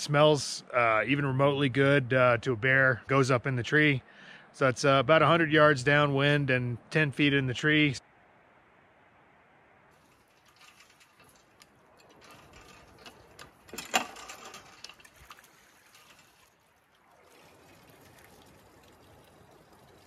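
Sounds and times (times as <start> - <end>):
metal pump handle clanking: 10.5 - 15.4
water running into plastic jug: 14.2 - 20.0.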